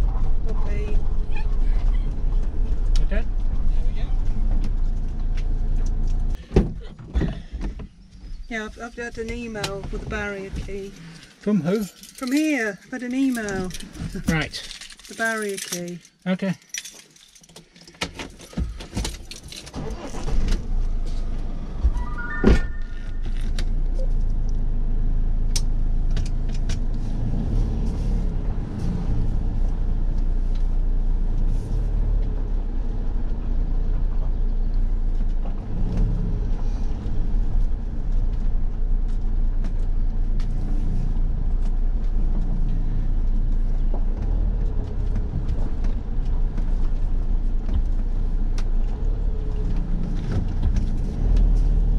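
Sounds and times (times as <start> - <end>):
vehicle engine starting and running: 18.5 - 51.9
electronic beeps: 21.9 - 23.4.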